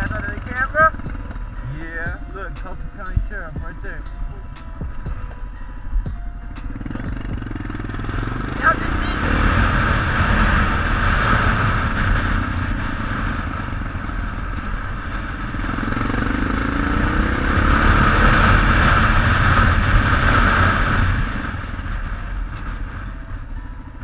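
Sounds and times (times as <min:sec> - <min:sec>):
motorcycle engine running: 0:00.0 - 0:24.0
wind rushing over microphone: 0:06.8 - 0:23.2.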